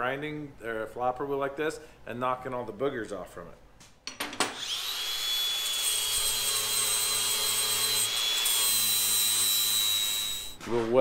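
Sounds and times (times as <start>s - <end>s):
angle grinder polishing metal: 4.5s - 10.6s.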